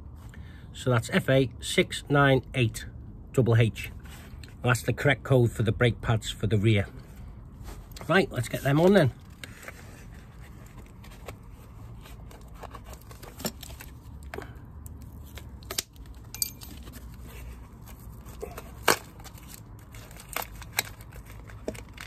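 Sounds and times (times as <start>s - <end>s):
paper packaging rustling and tearing: 7.6s - 14.3s, 15.0s - 22.0s.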